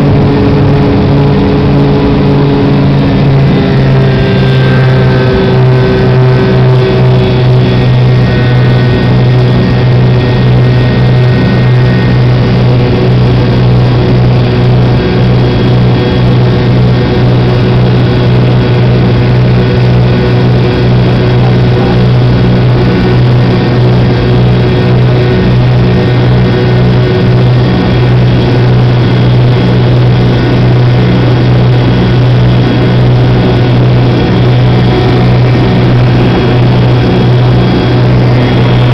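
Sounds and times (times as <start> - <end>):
high whining tones: 0.0 - 38.9
jet engine drone: 0.0 - 38.9.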